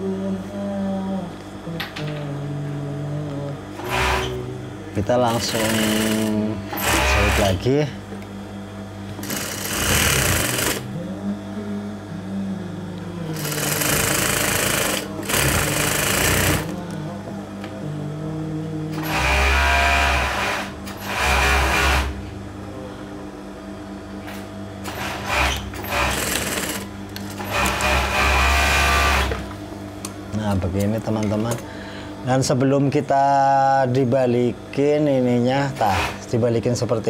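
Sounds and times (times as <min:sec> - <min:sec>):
steady low hum: 0:00.0 - 0:37.0
sewing machine stitching: 0:05.3 - 0:07.6, 0:09.2 - 0:10.9, 0:13.4 - 0:16.7, 0:24.9 - 0:29.4.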